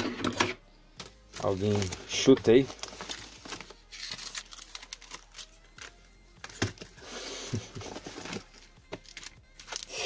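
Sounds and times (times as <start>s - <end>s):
plastic packaging crinkling: 1.4s - 5.6s.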